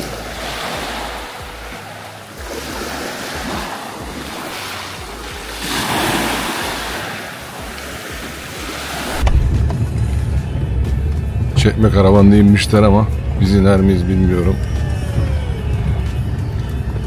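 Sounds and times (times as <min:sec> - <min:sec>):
waves washing over pebbles: 0:00.0 - 0:09.8
wind rumbling on microphone: 0:03.4 - 0:13.4.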